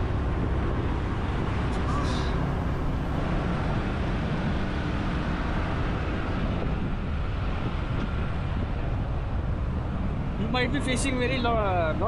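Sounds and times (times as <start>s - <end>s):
vehicle road and engine rumble: 0.0s - 12.0s.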